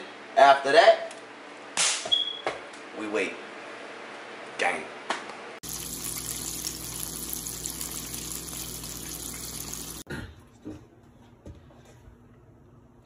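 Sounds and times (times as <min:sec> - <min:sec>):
chicken frying in hot oil: 0:05.6 - 0:10.1.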